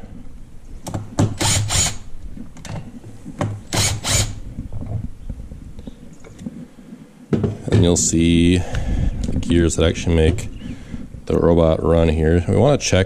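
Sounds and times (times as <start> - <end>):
cordless impact driver running: 1.4 - 2.1, 3.7 - 4.4.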